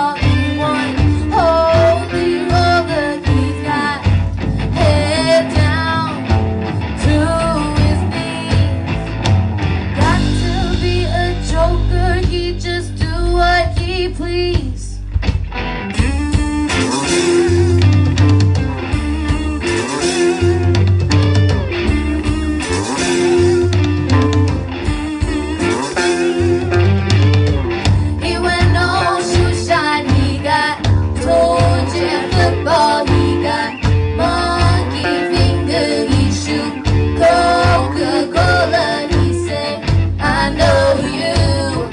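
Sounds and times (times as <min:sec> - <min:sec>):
person singing lead vocals: 0:00.0 - 0:08.9, 0:10.0 - 0:15.1, 0:16.0 - 0:18.1, 0:27.8 - 0:41.9
bass guitar: 0:00.0 - 0:41.9
drum kit: 0:00.0 - 0:41.9
electric guitars: 0:00.0 - 0:41.9.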